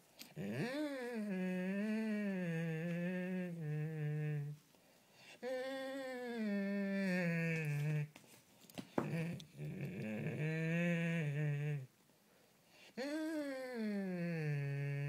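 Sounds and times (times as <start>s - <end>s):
dog moaning: 0.3s - 4.6s, 5.4s - 8.1s, 9.0s - 11.9s.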